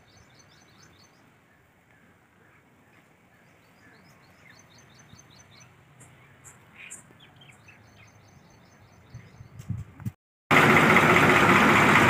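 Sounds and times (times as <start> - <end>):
small bird chirping: 3.4 - 9.7.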